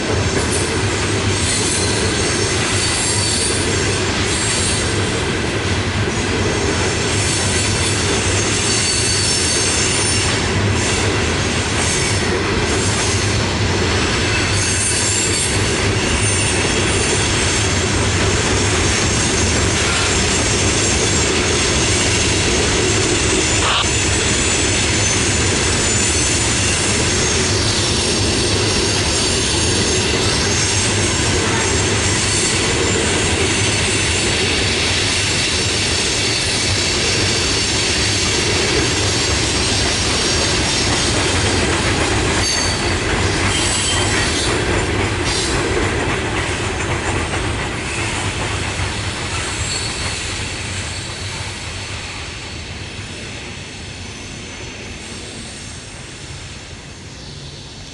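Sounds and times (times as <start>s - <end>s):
freight train wheels rumbling: 0.0s - 57.9s
high wheel squeals: 8.4s - 10.3s, 42.4s - 44.5s, 49.3s - 51.3s.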